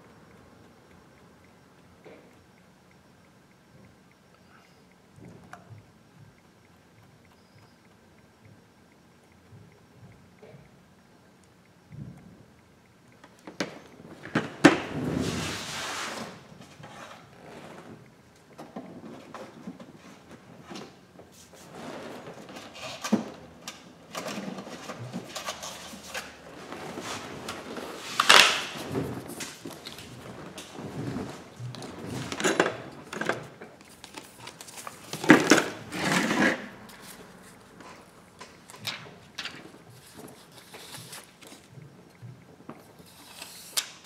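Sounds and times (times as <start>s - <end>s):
plastic box and items clattering: 26.7s - 36.7s.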